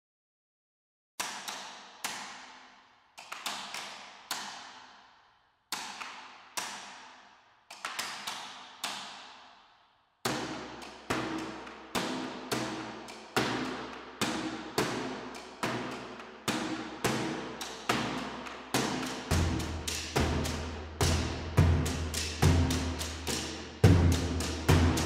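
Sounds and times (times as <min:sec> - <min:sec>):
echoing percussion hits: 0:18.8 - 0:25.0.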